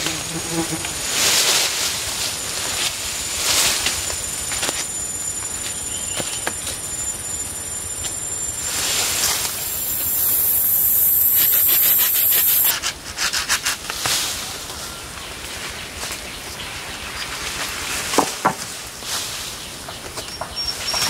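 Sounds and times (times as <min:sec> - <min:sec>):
high insect drone: 0:00.0 - 0:12.7.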